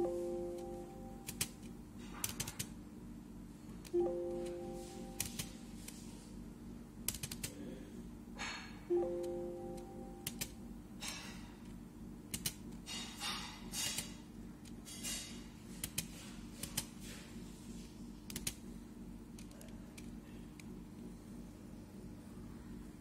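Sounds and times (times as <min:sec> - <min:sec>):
steady low hum: 0:00.0 - 0:23.0
laptop key clicks: 0:10.2 - 0:10.5, 0:12.3 - 0:12.6, 0:18.3 - 0:18.6.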